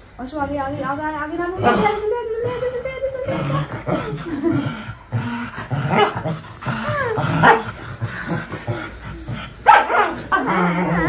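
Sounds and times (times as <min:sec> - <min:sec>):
dog barking: 0:05.9 - 0:06.3, 0:07.4 - 0:07.7, 0:09.6 - 0:10.5.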